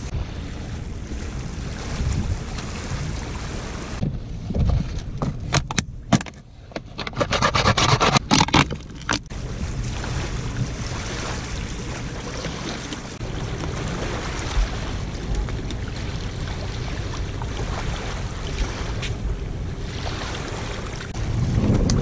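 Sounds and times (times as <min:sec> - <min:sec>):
water lapping: 0:00.0 - 0:05.5, 0:06.5 - 0:22.0
wind: 0:00.0 - 0:22.0
knife cutting plastic bottle: 0:06.9 - 0:09.3.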